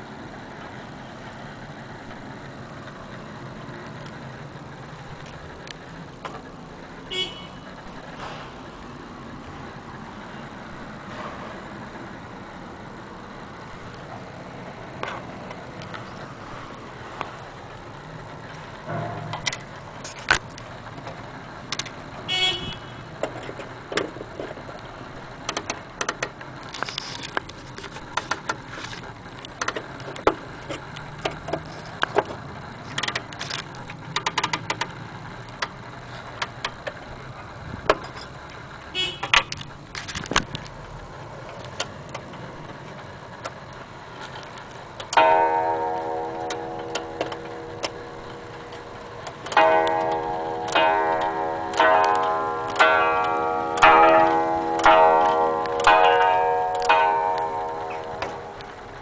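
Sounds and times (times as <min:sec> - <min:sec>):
handling clicks and knocks: 0:25.4 - 0:35.8, 0:39.2 - 0:40.8, 0:44.2 - 0:59.0
low background rumble: 0:34.9 - 0:59.0.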